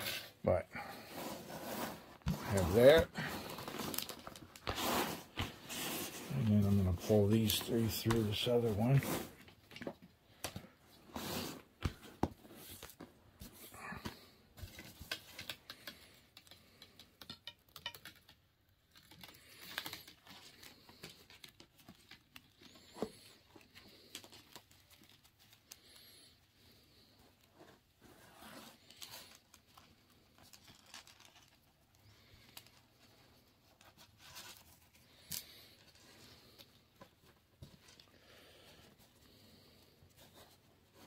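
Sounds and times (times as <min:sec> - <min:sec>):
cord rustling and scraping: 0:00.0 - 0:41.0
small clicks and taps: 0:14.8 - 0:20.2.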